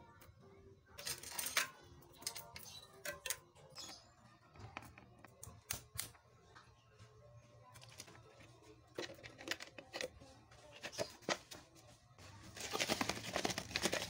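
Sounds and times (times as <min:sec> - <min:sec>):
metal chain clicking and rattling: 0:01.0 - 0:03.4.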